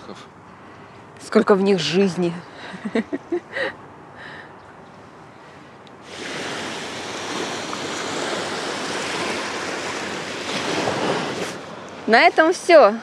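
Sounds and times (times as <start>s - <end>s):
surf breaking on sandy beach: 6.0s - 12.7s.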